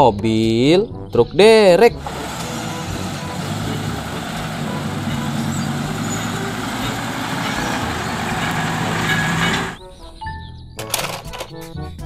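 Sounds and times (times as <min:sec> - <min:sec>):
diesel truck engine droning: 0:01.9 - 0:09.8.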